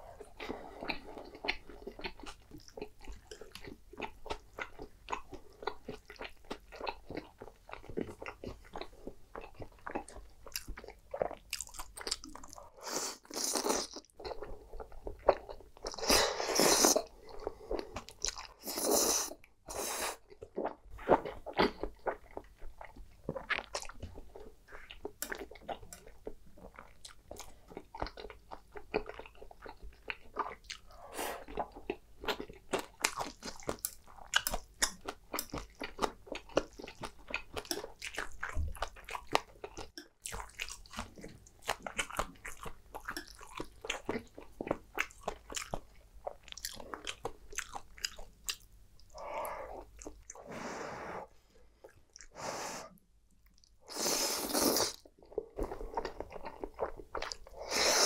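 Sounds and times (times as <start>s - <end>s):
close chewing and mouth sounds: 0.0s - 50.5s, 51.3s - 58.0s
slurping noodles: 53.9s - 55.1s, 57.5s - 58.0s.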